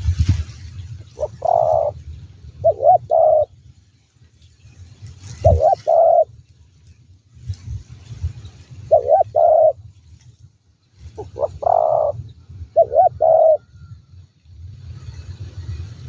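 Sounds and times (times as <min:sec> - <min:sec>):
dove cooing: 0:01.2 - 0:02.0, 0:02.6 - 0:03.5, 0:05.4 - 0:06.3, 0:08.8 - 0:09.8, 0:11.1 - 0:13.8.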